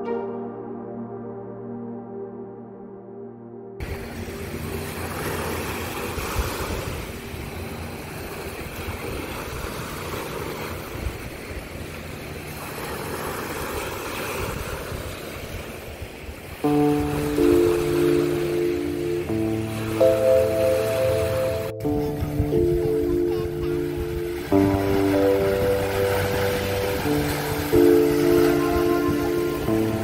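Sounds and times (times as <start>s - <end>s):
music: 0.0s - 5.8s, 16.6s - 30.0s
wind rumbling on microphone: 3.8s - 17.6s
surf washing onto beach: 3.8s - 30.0s.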